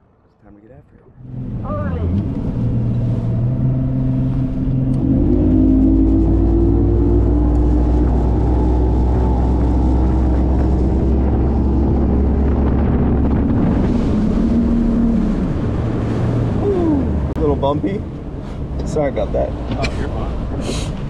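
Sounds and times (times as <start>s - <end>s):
outboard motor running: 1.2s - 17.5s
wind buffeting microphone: 1.2s - 18.9s.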